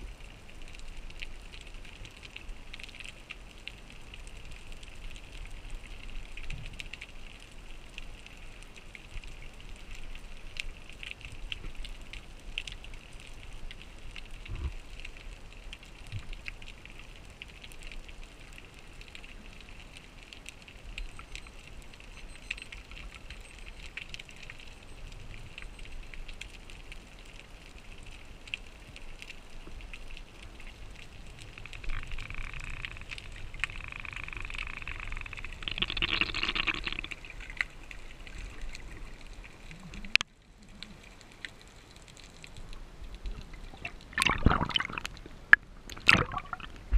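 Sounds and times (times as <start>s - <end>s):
small crackling clicks: 0.0s - 46.9s
rush of bubbles: 35.5s - 37.7s, 43.4s - 46.9s.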